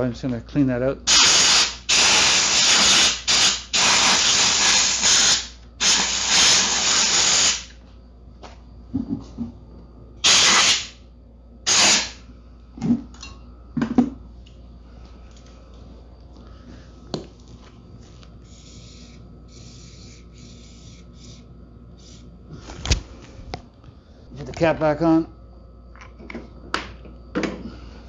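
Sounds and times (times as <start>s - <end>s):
compressed air blast: 1.1s - 7.7s, 10.2s - 11.0s, 11.7s - 12.2s.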